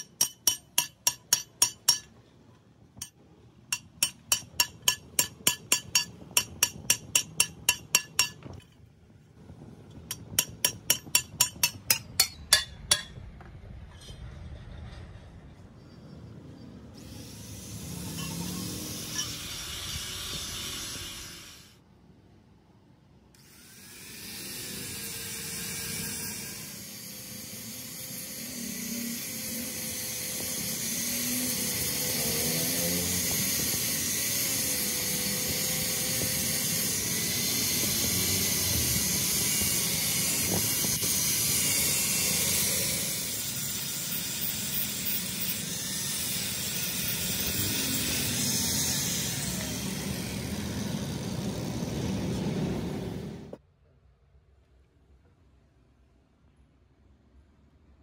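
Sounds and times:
angle grinder grinding metal: 0.0s - 2.1s, 3.0s - 8.6s, 10.1s - 13.2s, 17.0s - 21.7s, 23.4s - 53.3s.

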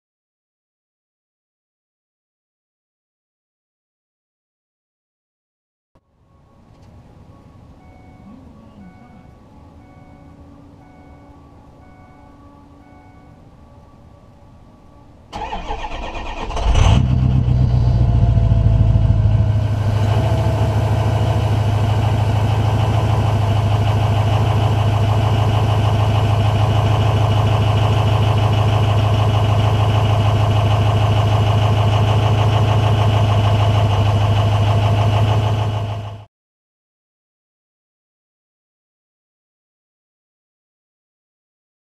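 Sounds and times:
diesel engine idling: 7.2s - 13.4s, 15.3s - 36.3s.

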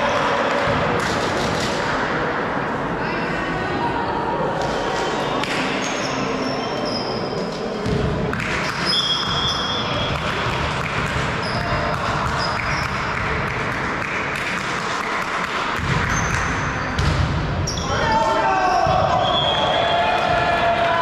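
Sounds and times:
sneakers squeaking on court floor: 8.8s - 10.2s, 15.9s - 17.9s
ball bouncing: 15.4s - 17.5s.

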